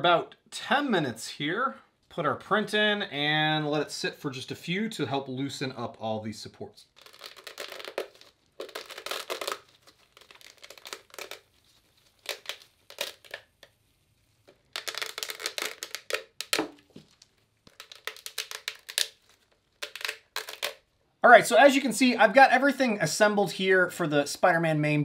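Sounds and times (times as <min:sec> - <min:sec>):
plastic supports snapping and crackling: 0:14.5 - 0:20.8.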